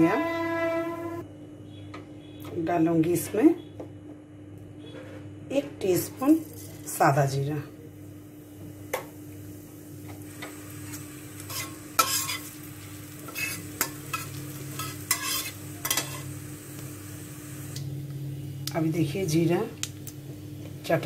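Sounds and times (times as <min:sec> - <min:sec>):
steady low hum: 0:00.0 - 0:21.0
seeds sizzling in hot oil: 0:08.9 - 0:17.9
cumin crackling: 0:10.2 - 0:17.9, 0:19.7 - 0:20.2
spatula scraping pan: 0:11.4 - 0:12.5, 0:13.2 - 0:16.3.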